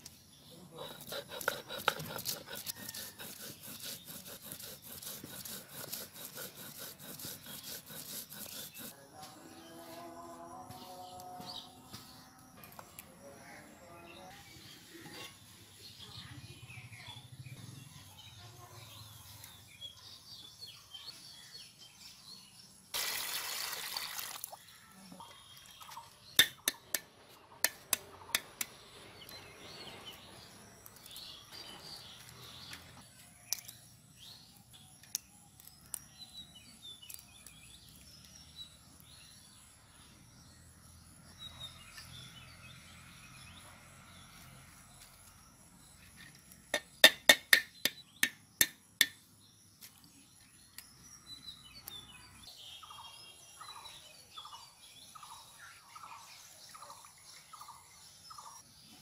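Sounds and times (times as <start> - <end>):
birds chirping: 24.5 - 59.0.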